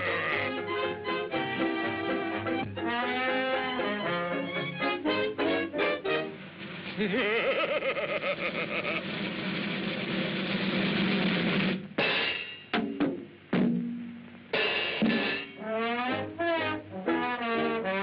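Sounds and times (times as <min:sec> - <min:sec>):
crashing cymbals and drums: 0:09.1 - 0:15.6
sharp percussion hits: 0:09.9 - 0:13.0, 0:14.6 - 0:15.6.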